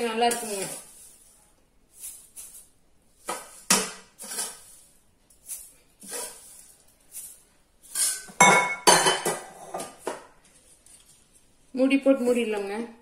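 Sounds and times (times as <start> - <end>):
metal spoon scraping steel bowl: 2.0 - 8.4
dishes clattering: 7.9 - 10.3.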